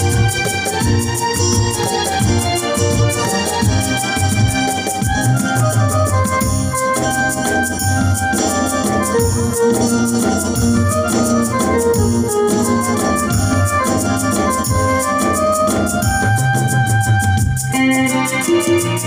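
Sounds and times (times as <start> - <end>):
drum beat: 0.0 - 17.8
bass: 0.0 - 19.0
organ-like keyboard melody: 0.0 - 19.0.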